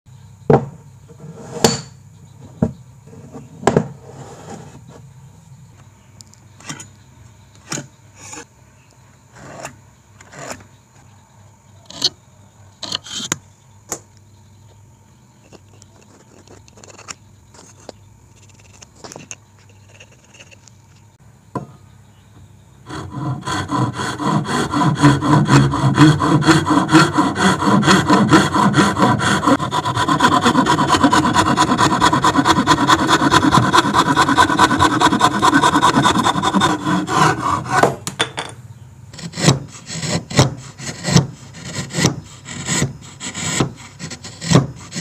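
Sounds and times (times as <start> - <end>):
faint steady hum: 0.1 - 45.0
tools knocking on wooden workbench: 0.5 - 0.8, 1.6 - 4.0, 21.5 - 21.8, 37.8 - 38.6.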